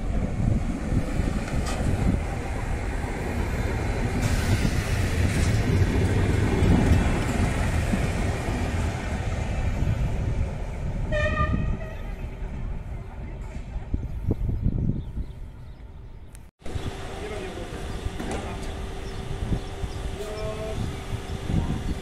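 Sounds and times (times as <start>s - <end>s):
train wheels rumbling on rails: 0.0s - 14.6s, 16.6s - 22.0s.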